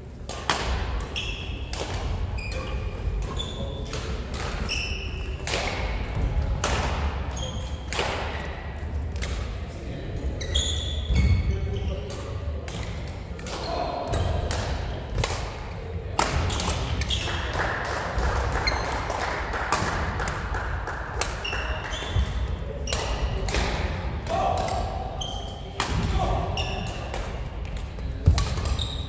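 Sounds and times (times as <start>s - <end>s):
rackets hitting shuttlecock: 0.2s - 8.5s, 12.0s - 17.6s, 21.1s - 29.0s
voices murmuring: 9.3s - 19.4s.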